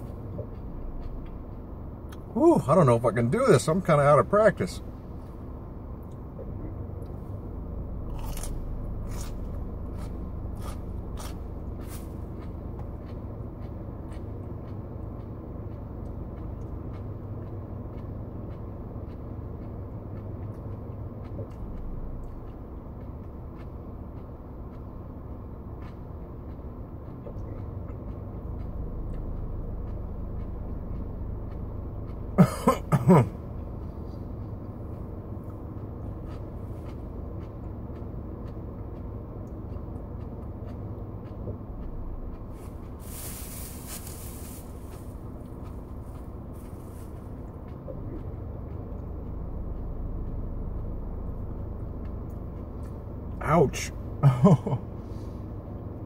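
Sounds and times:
car interior hum: 0.0 - 56.0
man coughing: 32.4 - 33.4, 53.8 - 54.8.

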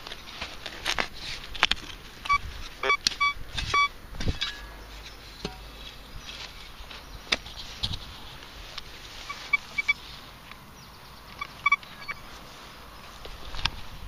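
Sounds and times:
metal detector beeps: 2.2 - 3.9, 9.2 - 10.0, 11.4 - 12.2.

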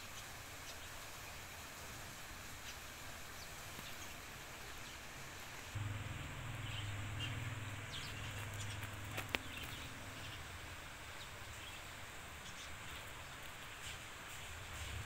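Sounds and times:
low hum: 5.7 - 11.8
faint bird chirps: 5.8 - 13.5.

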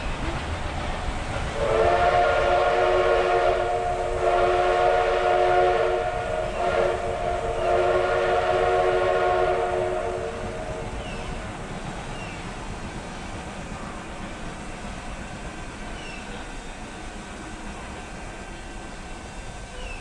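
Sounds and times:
steam locomotive chime whistle: 1.6 - 11.0.

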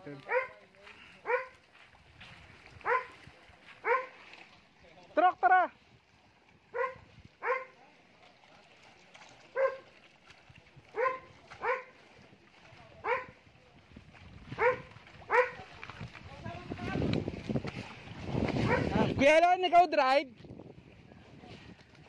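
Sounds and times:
dog barking: 0.2 - 0.6, 1.2 - 1.6, 2.8 - 3.2, 3.8 - 4.1, 6.7 - 7.8, 9.5 - 9.9, 10.9 - 12.0, 13.0 - 13.4, 14.6 - 15.6, 18.6 - 19.0.

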